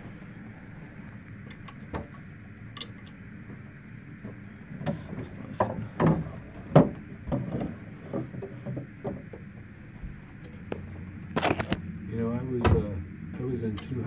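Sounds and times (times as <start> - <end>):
knocks and thumps: 4.2 - 10.2.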